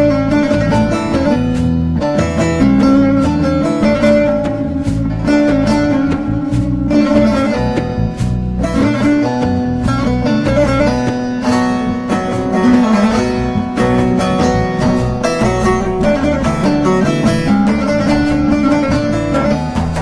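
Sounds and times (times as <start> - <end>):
plucked string instruments playing: 0.0 - 20.0.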